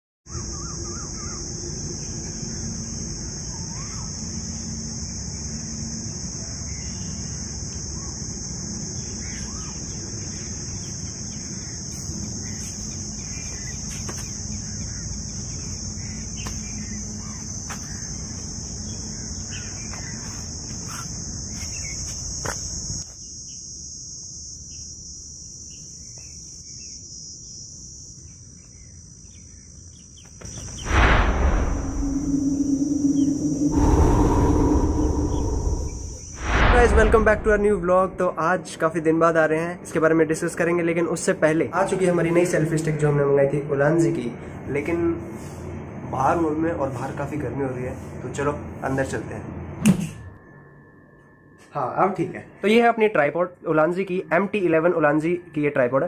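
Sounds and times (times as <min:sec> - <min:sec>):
faint bird chirps: 0:00.3 - 0:02.3, 0:03.4 - 0:04.2, 0:09.0 - 0:21.0, 0:28.3 - 0:38.0
insect chorus: 0:00.3 - 0:49.5
low outdoor rumble: 0:30.8 - 0:38.6.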